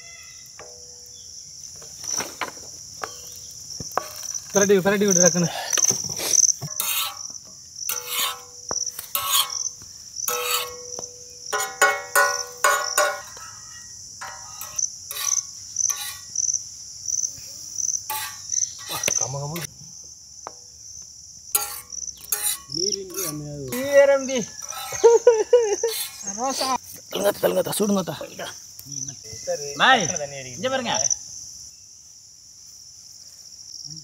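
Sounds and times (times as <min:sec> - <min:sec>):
insects chirping: 0:00.0 - 0:34.0
metal spatulas scraping griddle: 0:06.2 - 0:09.7, 0:10.3 - 0:16.3, 0:18.1 - 0:19.7, 0:21.6 - 0:26.8.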